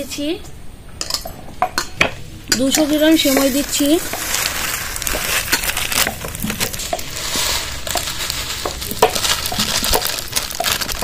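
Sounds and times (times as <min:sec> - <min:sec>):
vermicelli sizzling in ghee: 0:02.5 - 0:11.0.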